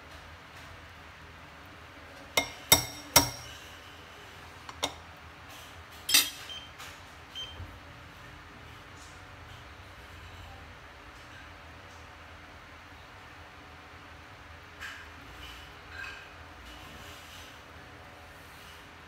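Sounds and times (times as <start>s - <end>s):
chopsticks clinking on glass: 6.1s - 6.5s.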